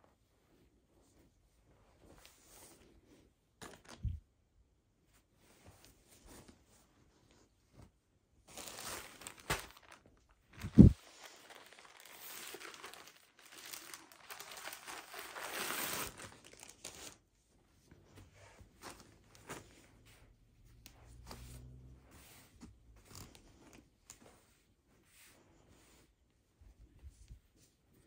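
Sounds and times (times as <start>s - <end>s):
clothing rustling: 0.0s - 4.3s, 4.9s - 28.0s
plastic bag tearing and crinkling: 8.5s - 17.2s.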